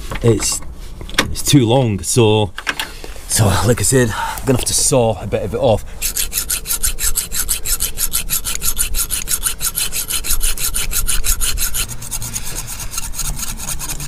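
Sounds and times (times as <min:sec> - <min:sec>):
hacksaw cutting metal: 0:06.0 - 0:14.0.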